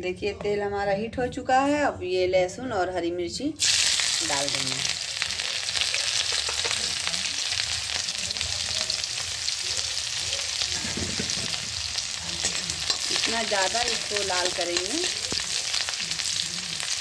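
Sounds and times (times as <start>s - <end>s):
garlic sizzling in hot oil: 3.6s - 17.0s.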